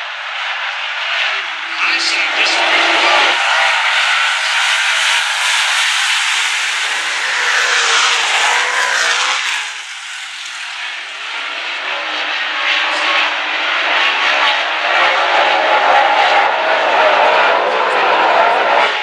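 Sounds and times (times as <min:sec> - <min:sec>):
race car engines droning: 0:00.0 - 0:19.0.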